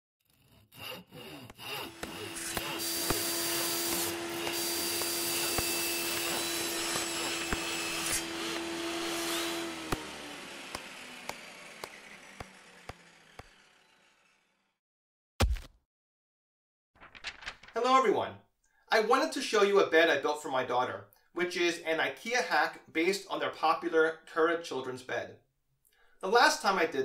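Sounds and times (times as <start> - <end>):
sawing on wood: 0.2 - 14.7
power tool humming: 0.7 - 14.7.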